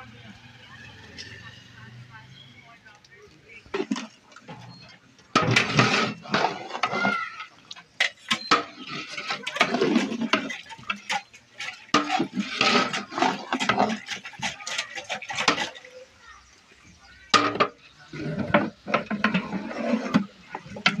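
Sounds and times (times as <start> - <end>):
metal ladle scraping pot: 3.5 - 16.0, 17.4 - 21.0.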